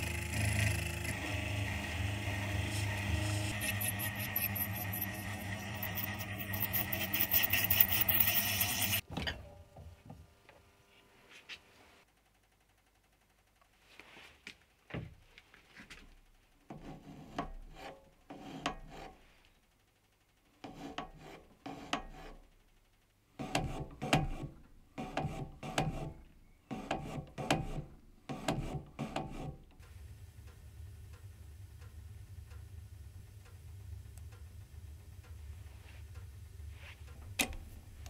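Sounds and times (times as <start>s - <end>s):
lathe tool scraping metal: 0.0s - 9.0s.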